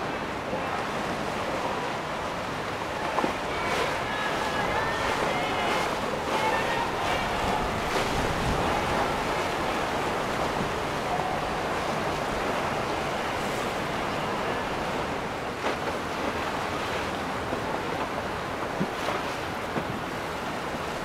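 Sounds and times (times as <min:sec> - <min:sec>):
water rushing: 0:00.0 - 0:21.0
wind buffeting microphone: 0:02.2 - 0:15.7.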